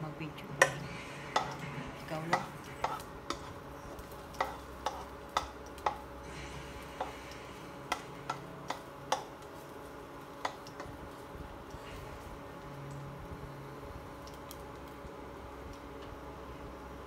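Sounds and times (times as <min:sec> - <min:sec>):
plastic spatula tapping nonstick pan: 0:02.3 - 0:03.5, 0:04.3 - 0:06.0, 0:07.9 - 0:09.3, 0:10.4 - 0:10.9.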